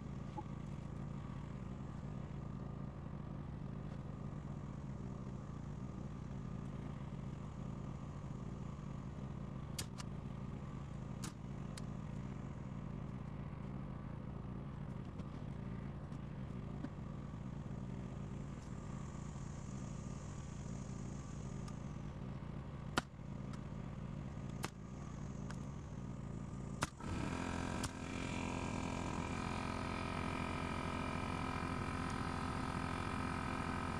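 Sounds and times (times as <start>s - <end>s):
generator engine humming: 0.0s - 33.9s
power tool whirring: 26.8s - 33.9s.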